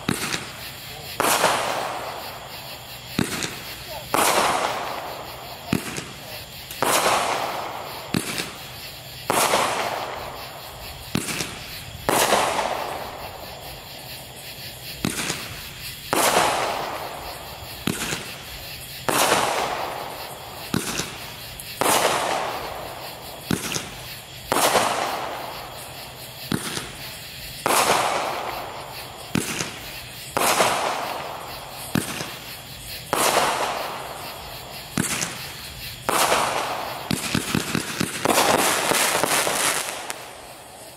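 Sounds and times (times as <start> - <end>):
firework launch pops: 0.0 - 13.5, 15.0 - 40.9
firework bursts in the air: 0.0 - 40.9.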